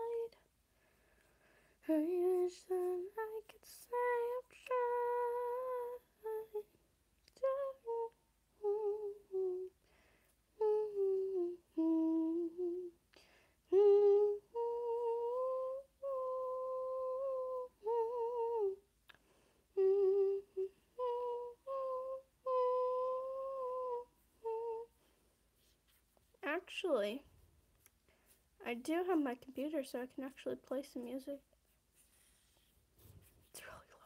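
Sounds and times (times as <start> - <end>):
person humming: 0.0 - 0.4, 7.4 - 9.8, 10.6 - 13.0, 13.7 - 25.0.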